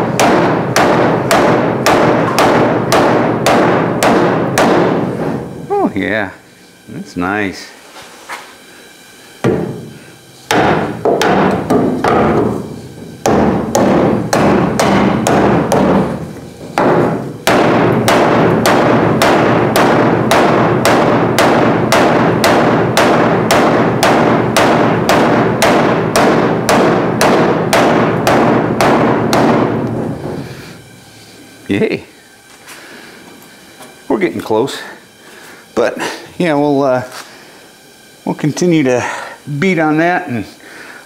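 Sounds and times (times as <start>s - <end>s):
hammer blows on steel panel: 0.0s - 5.5s, 9.4s - 30.9s.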